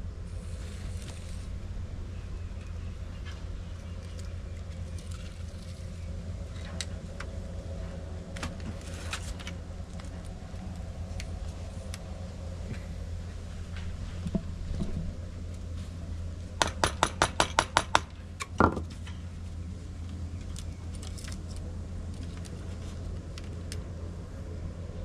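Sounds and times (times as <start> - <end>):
steady low hum: 0.0 - 25.0
clicks and scratches of basket weaving: 0.3 - 1.6, 3.2 - 7.4, 8.3 - 12.9, 20.0 - 24.0.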